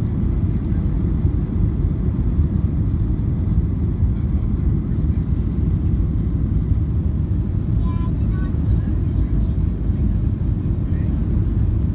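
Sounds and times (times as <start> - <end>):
airliner cabin roar: 0.0 - 11.9.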